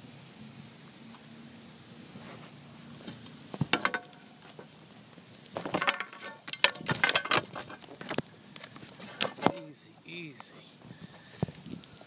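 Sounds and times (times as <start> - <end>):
fishing net rustling and clattering: 2.2 - 9.8.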